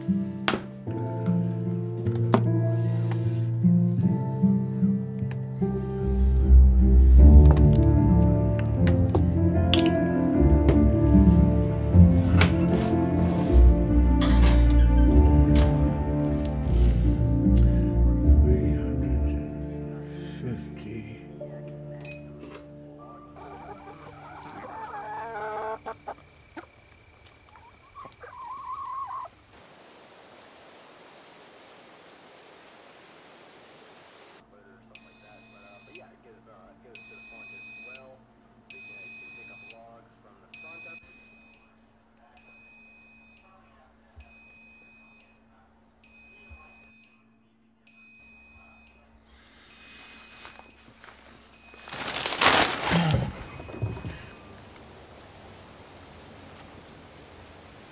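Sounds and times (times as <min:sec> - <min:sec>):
hens clucking: 0:23.2 - 0:29.5
faint outdoor hiss: 0:25.8 - 0:38.7, 0:53.5 - 0:57.9
newspaper rustling: 0:49.9 - 0:55.6.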